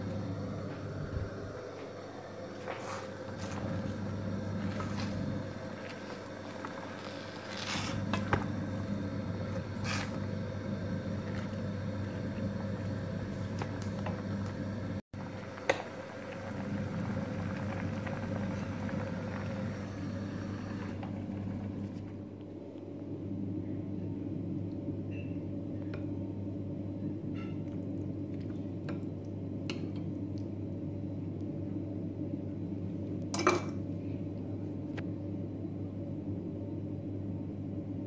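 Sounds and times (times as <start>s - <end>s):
gas burner hissing: 0.0s - 21.6s.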